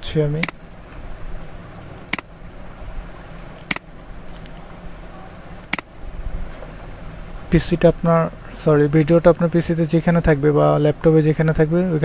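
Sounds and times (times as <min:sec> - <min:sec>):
low electrical hum: 0:00.0 - 0:12.0
room hiss: 0:00.0 - 0:12.0
computer mouse clicks: 0:02.0 - 0:02.3, 0:05.6 - 0:05.9.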